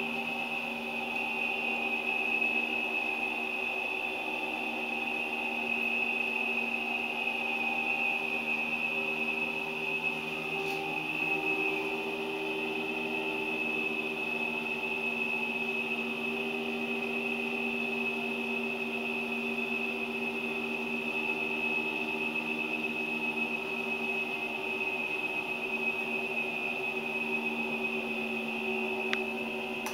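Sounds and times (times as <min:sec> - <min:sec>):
small motor humming with whine: 0:00.0 - 0:29.9.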